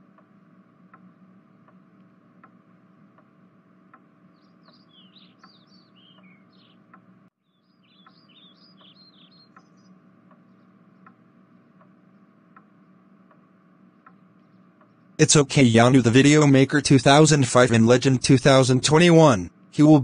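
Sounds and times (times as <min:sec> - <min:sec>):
soft regular ticking: 0:00.0 - 0:07.3, 0:08.0 - 0:19.8
low steady hum: 0:00.0 - 0:20.0
birds twittering: 0:03.9 - 0:15.2.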